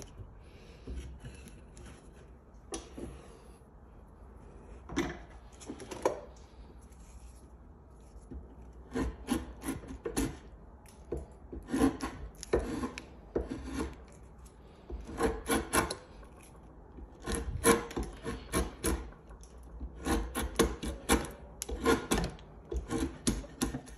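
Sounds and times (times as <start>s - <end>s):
drawknife shaving wood: 6.2s - 23.9s.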